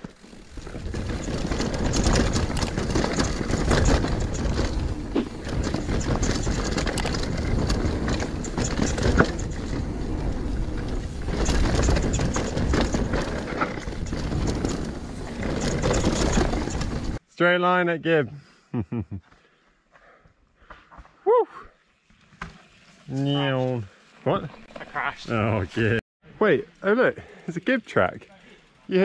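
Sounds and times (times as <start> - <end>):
bike knocks and rattles: 0.0 - 17.2
bike tyres rumbling over ground: 0.0 - 17.2.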